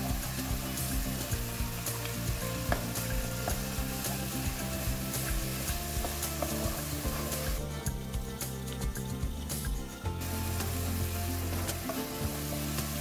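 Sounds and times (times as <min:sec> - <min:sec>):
paste sizzling in a wok: 0:00.0 - 0:13.0
spatula scraping and tapping pan: 0:05.3 - 0:07.6, 0:11.5 - 0:12.3.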